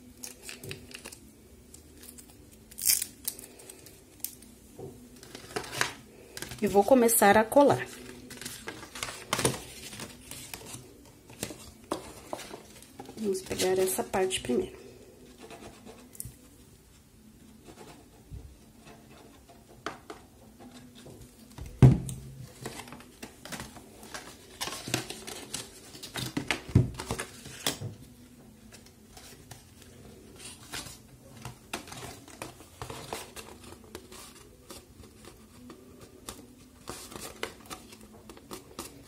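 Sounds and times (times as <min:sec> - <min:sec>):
paper rustling and scraping: 0:05.1 - 0:14.3, 0:22.5 - 0:28.1, 0:28.7 - 0:39.0.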